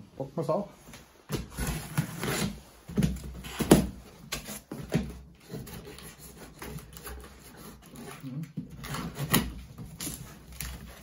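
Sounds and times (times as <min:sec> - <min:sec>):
scissors cutting packing tape: 0:03.4 - 0:11.0.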